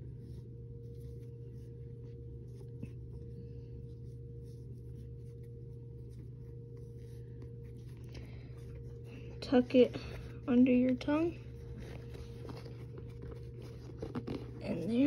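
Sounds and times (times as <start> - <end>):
steady low hum: 0.0 - 15.0
shoelace rustling and clicking: 10.7 - 15.0.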